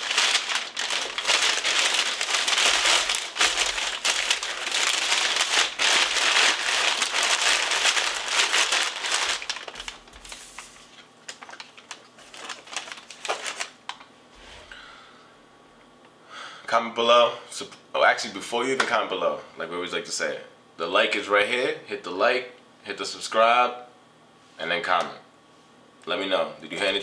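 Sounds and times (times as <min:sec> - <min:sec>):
packing paper crinkling: 0:00.0 - 0:14.0
plastic bag crinkling: 0:00.0 - 0:14.0.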